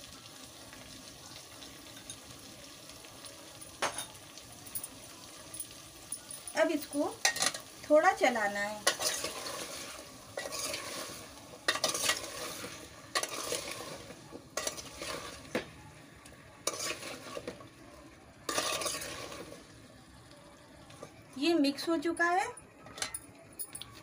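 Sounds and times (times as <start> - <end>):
food sizzling gently in a pot: 0.0 - 24.0
scraping swish of stirring: 9.0 - 15.4, 16.6 - 17.5.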